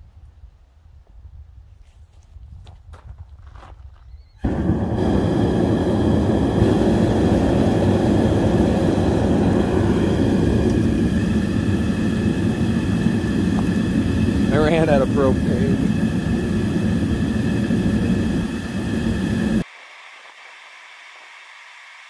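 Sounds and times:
gas burner roaring: 0:04.4 - 0:19.7.

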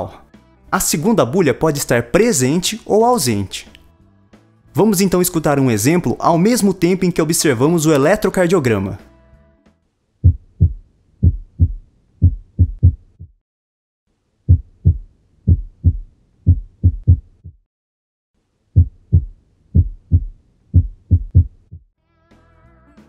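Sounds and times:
heartbeat lub-dub: 0:10.2 - 0:13.4, 0:14.5 - 0:17.6, 0:18.8 - 0:21.8.

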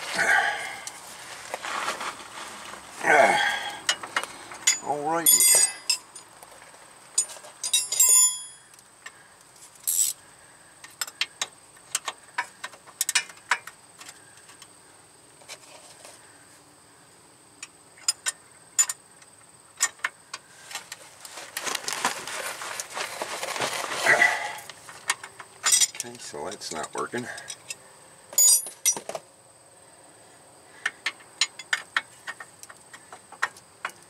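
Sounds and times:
socket wrench clinking on metal: 0:04.6 - 0:06.3, 0:07.2 - 0:08.7, 0:25.6 - 0:26.1, 0:28.4 - 0:29.1.

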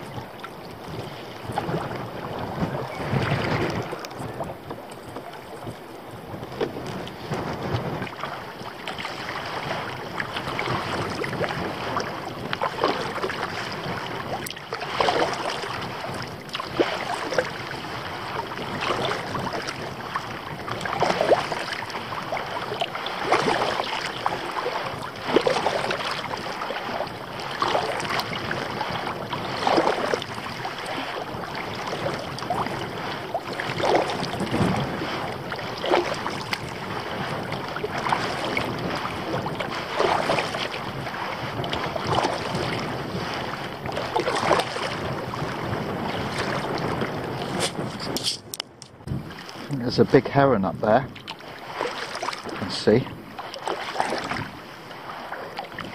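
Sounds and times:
paddle strokes splashing: 0:00.0 - 0:55.9
water washing along hull: 0:00.0 - 0:55.9.

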